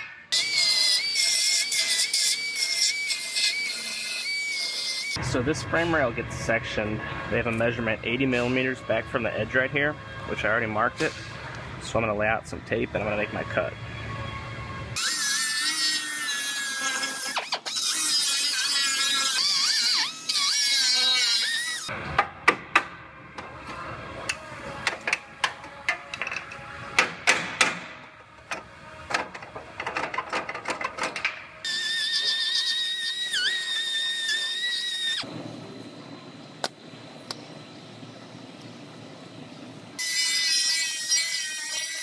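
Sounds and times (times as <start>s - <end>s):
cut-off tool whining: 15.0s - 21.9s.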